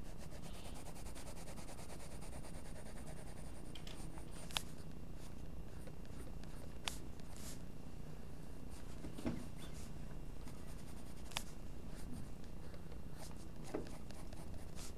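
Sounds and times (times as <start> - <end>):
pencil scratching on paper: 0.0 - 3.6, 13.2 - 14.9.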